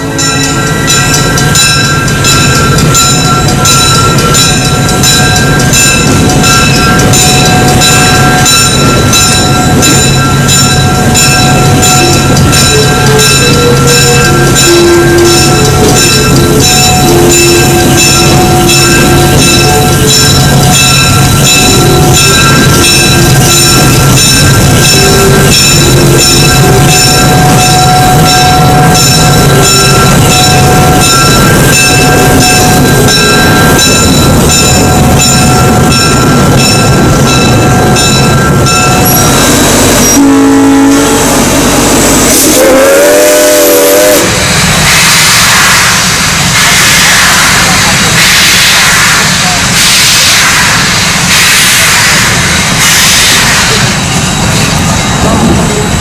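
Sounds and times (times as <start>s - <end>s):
train running past clicking: 0.0s - 56.0s
steam locomotive whistle: 10.8s - 24.0s, 24.8s - 33.8s, 39.0s - 53.9s.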